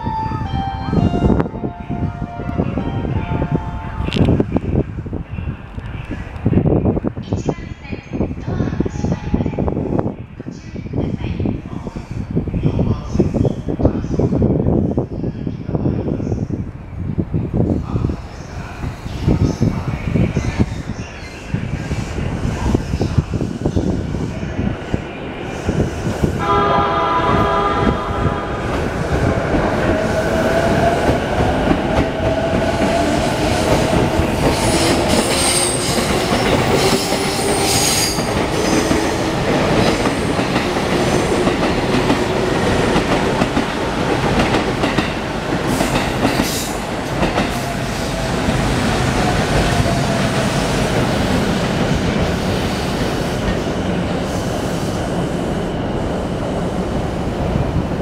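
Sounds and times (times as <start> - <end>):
train wheels clattering on rails: 28.7 - 52.6.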